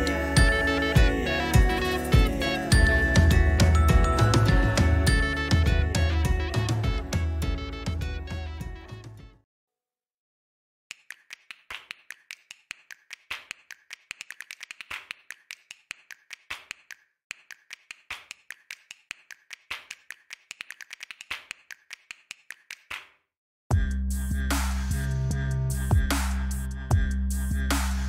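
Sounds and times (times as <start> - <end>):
fast sharp clicks: 10.9 - 23.0.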